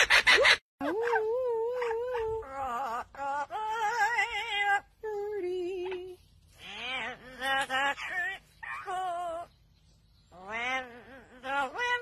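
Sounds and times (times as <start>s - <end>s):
parrot singing: 1.8s - 5.0s, 5.7s - 12.0s.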